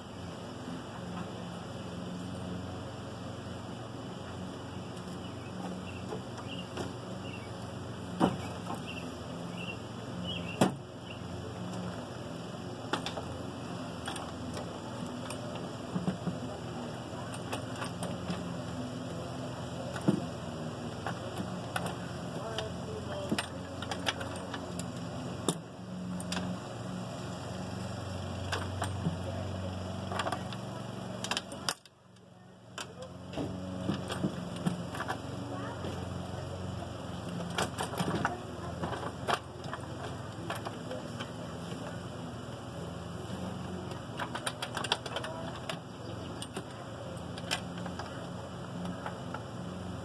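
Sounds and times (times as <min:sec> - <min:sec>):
steady low hum: 0:00.0 - 0:50.0
metal parts clicking and knocking: 0:22.6 - 0:25.6, 0:44.2 - 0:48.1.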